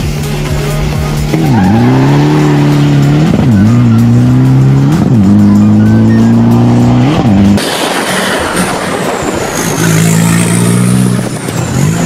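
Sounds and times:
diesel engine at full throttle: 0.0 - 12.0.

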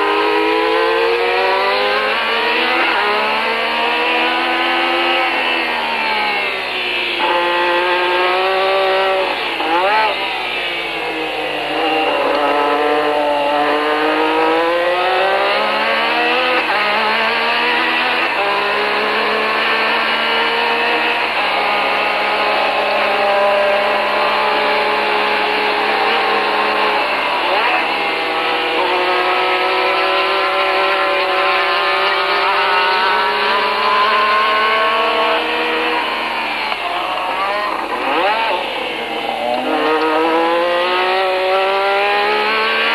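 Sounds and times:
race car engine revving: 0.0 - 42.9.

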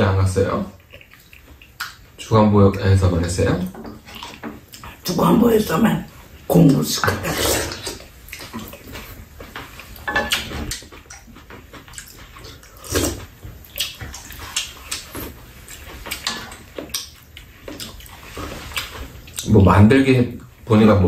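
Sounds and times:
wet chewing and slurping: 0.8 - 2.2, 3.9 - 5.1, 6.1 - 19.5.

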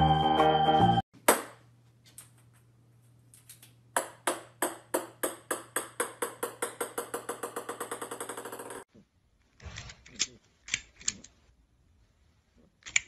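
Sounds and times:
ping-pong ball bouncing on wood floor: 4.0 - 8.8.

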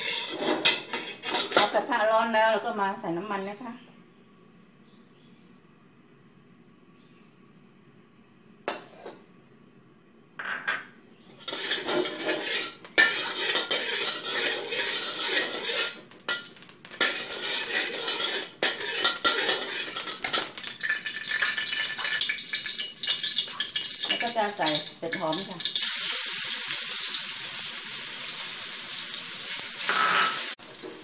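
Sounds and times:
metal spatula scraping wok: 0.0 - 1.9, 8.7 - 9.2, 11.3 - 25.5, 29.4 - 31.0.

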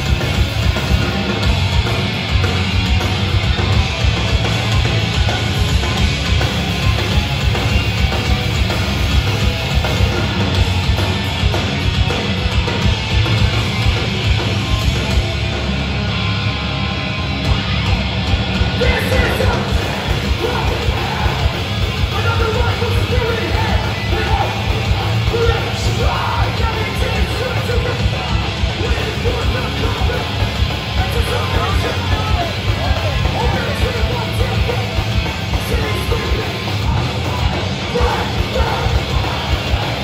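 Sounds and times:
distorted electric guitars: 0.0 - 40.0
drums: 0.0 - 40.0
punk band playing live: 0.0 - 40.0
shouted vocals: 18.7 - 40.0.

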